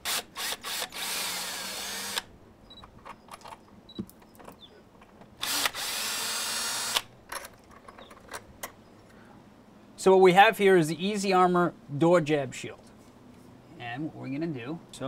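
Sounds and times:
cordless drill running: 0.0 - 2.3, 5.4 - 7.1.

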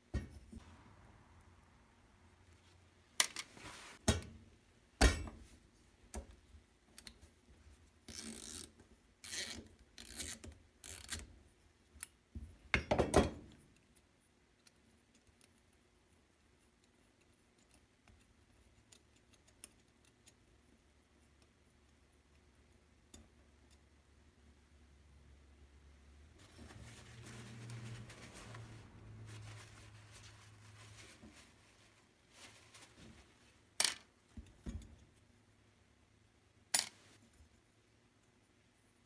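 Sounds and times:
scraping and rubbing: 26.4 - 33.6.

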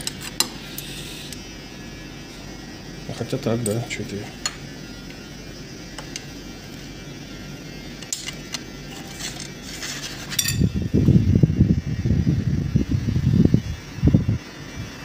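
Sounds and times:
wind buffeting microphone: 10.5 - 15.0.

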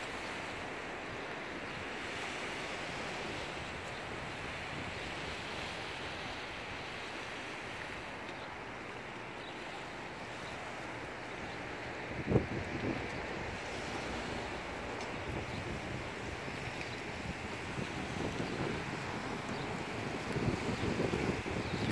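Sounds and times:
waves lapping on gravel shore: 0.0 - 21.9
wind: 0.0 - 21.9.

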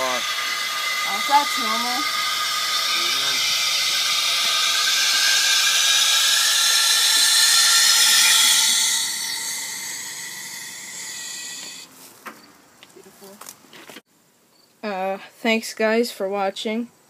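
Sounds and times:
thin whistling tones: 0.0 - 11.9
compressed air hissing: 0.0 - 12.0.

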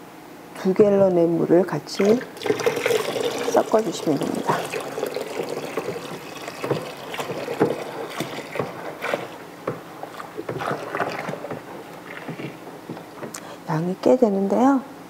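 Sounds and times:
liquid sloshing and splashing: 1.7 - 13.8
tap water pouring into bucket: 1.9 - 13.4.

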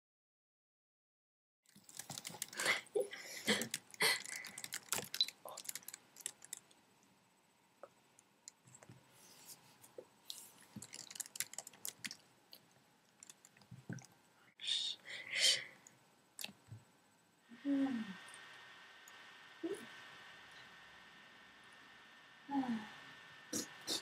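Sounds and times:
irregular clicks: 1.7 - 2.6, 3.5 - 6.8, 10.7 - 14.2.

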